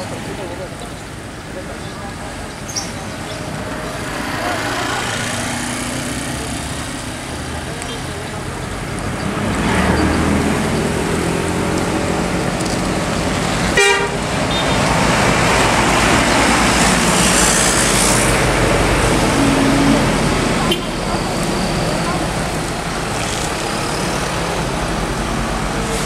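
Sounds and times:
diesel bus passing: 0.0s - 26.0s
bus horn toot: 13.7s - 14.9s, 19.3s - 21.1s.

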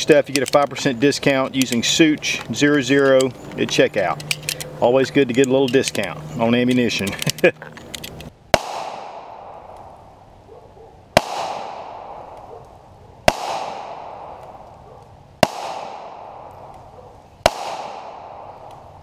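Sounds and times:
pistol shots with echo: 8.5s - 10.0s, 11.2s - 12.6s, 13.2s - 14.7s, 15.4s - 16.8s, 17.4s - 18.7s.

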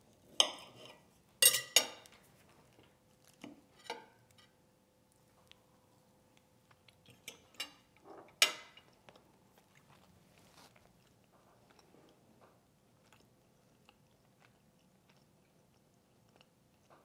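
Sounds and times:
cutlery clicking on a plate: 0.4s - 2.2s
faint chewing: 2.0s - 17.0s.

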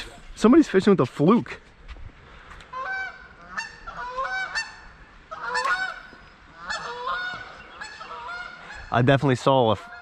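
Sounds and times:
geese honking: 2.7s - 10.0s.

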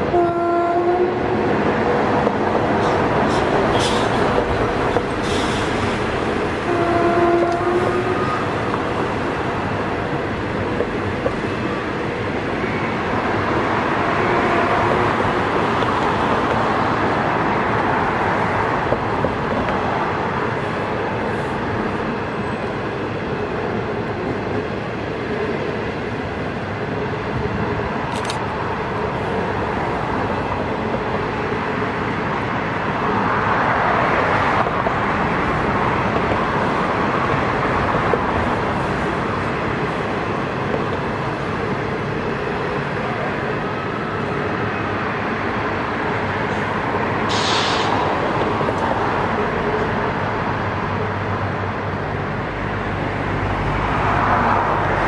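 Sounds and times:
train wheels rumbling on rails: 0.0s - 55.0s
sharp click: 28.1s - 28.4s.

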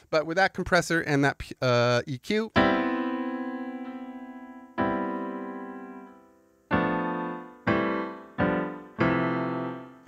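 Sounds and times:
piano chords ringing: 2.5s - 10.0s.

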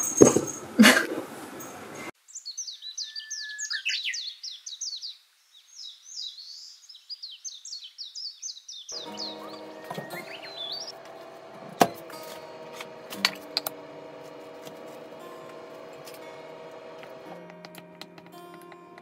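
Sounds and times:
songbirds chirping: 1.5s - 19.0s
whistled bird note: 2.4s - 4.4s, 9.0s - 17.7s
sharp knocks: 9.0s - 19.0s.

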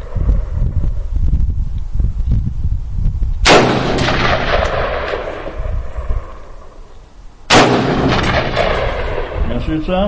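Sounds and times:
rifle shots with echo: 3.4s - 6.8s, 7.5s - 9.8s.

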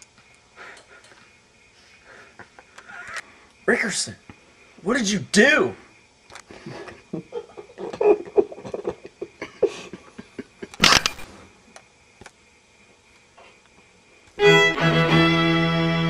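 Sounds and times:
scattered short sounds: 10.8s - 11.4s.

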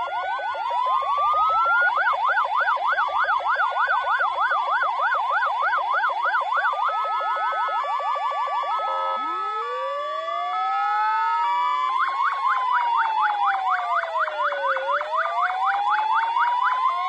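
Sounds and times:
fast yelp siren: 0.0s - 17.0s
wailing siren: 0.0s - 17.0s.

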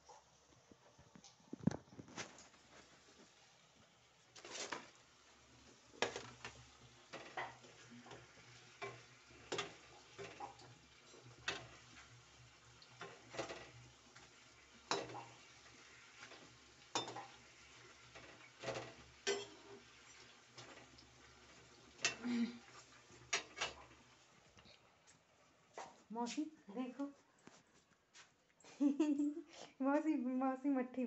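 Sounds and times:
frying sizzle: 0.0s - 26.0s
metal spoon scraping a steel pan: 18.1s - 20.7s.

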